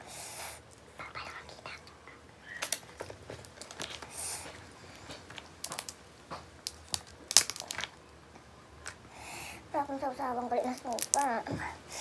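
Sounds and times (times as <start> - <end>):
crab shell cracking: 5.2 - 8.2, 10.7 - 11.4.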